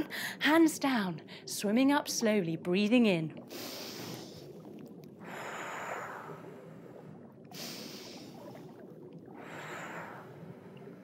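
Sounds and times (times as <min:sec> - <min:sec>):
woman breathing deeply: 0:03.5 - 0:04.5, 0:05.2 - 0:08.6, 0:09.4 - 0:11.0.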